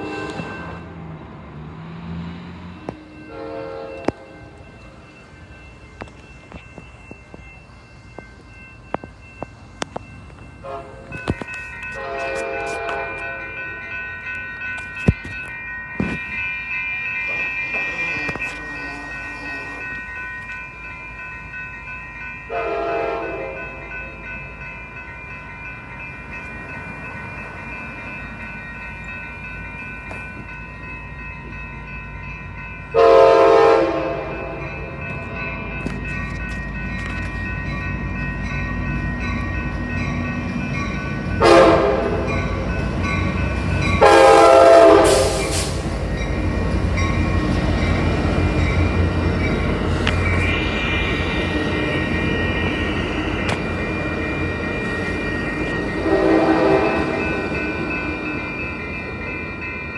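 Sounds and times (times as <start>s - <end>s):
train horn blasts: 0.0s - 0.9s, 3.3s - 4.4s, 10.6s - 11.3s, 11.9s - 13.5s, 22.5s - 23.8s, 32.9s - 34.6s, 41.4s - 42.3s, 44.0s - 45.7s, 56.0s - 57.3s
crossing warning bells ringing: 0.0s - 59.9s
train rumble: 0.0s - 59.9s.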